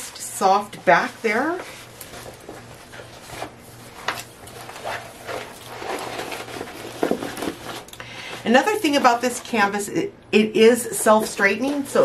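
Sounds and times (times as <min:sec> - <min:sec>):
canvas rustling and crinkling: 0:00.4 - 0:07.9.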